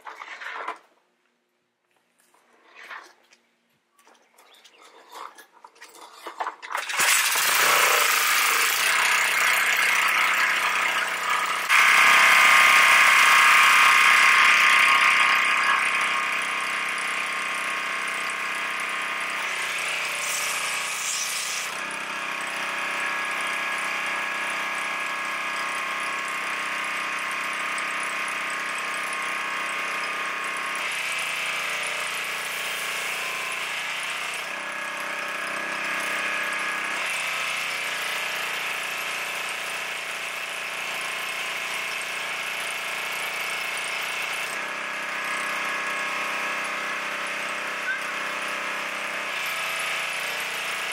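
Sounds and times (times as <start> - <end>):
engine starter cord pulls: 5.2 - 8.8
pressure washer engine running: 6.7 - 50.9.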